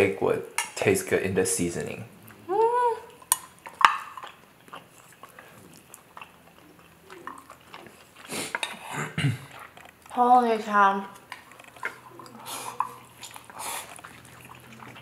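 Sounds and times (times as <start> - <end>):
chewing: 2.1 - 15.0
loud slurp of noodles: 8.3 - 9.0.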